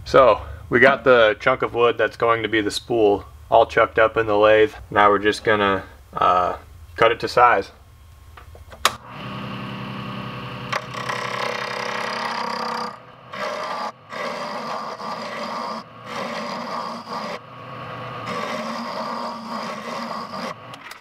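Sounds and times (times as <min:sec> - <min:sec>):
lathe humming: 0:09.0 - 0:20.8
chisel scraping spinning wood: 0:10.7 - 0:17.4, 0:18.2 - 0:20.8.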